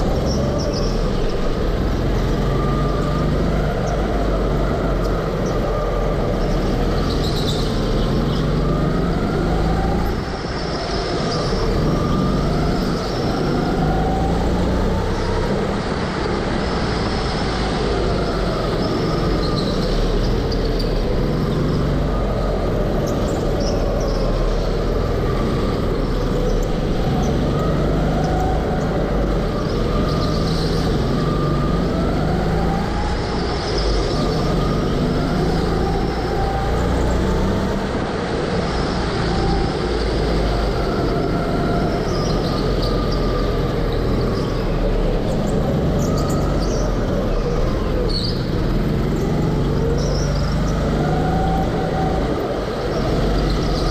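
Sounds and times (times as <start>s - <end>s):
go-kart engine running: 17.8s - 53.9s.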